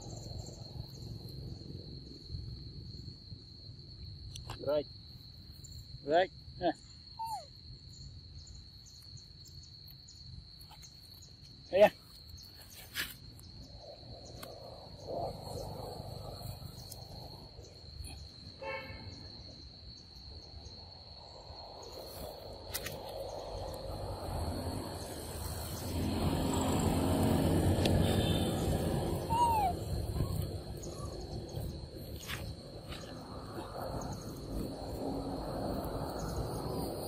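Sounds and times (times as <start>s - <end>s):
short falling squeak: 29.3s - 30.4s.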